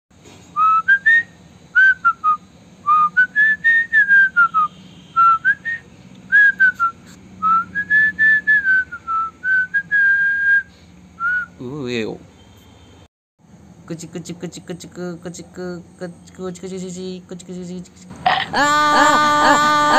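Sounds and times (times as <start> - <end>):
boy whistling a tune: 0.6 - 11.6.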